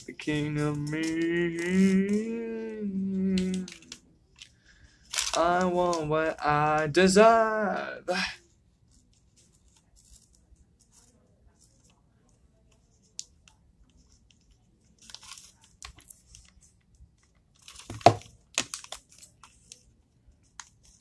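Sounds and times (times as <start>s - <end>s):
paper rustling and crinkling: 3.3s - 7.0s, 8.8s - 21.0s.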